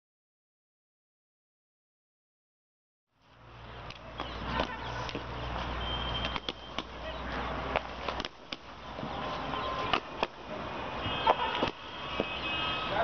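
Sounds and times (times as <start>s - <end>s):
cricket bats knocking ball: 6.2s - 7.0s, 9.8s - 10.4s, 11.3s - 12.3s.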